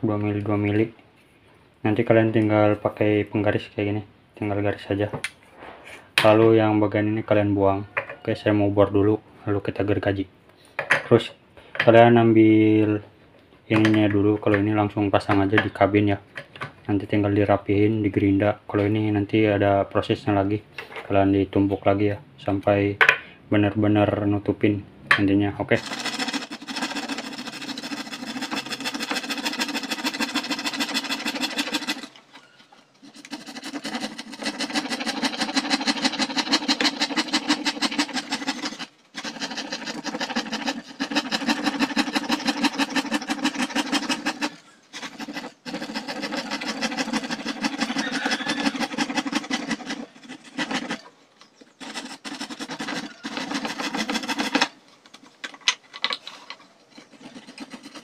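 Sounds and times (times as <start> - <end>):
scroll saw cutting plastic: 25.8 - 58.0.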